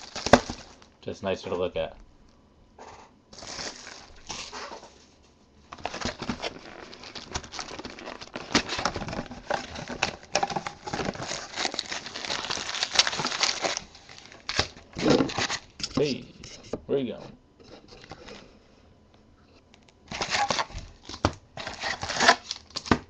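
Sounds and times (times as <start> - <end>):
plastic shrink wrap crinkling: 0.0 - 1.0, 3.4 - 4.5, 5.7 - 15.8, 20.1 - 23.0
cardboard box being opened: 5.7 - 15.6.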